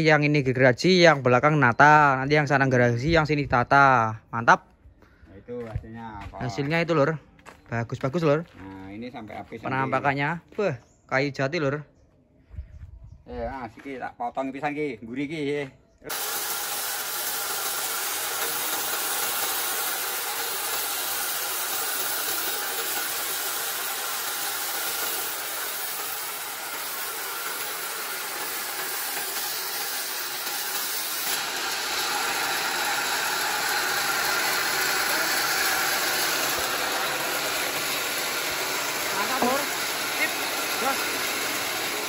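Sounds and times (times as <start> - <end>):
band saw cutting timber: 16.1 - 42.0.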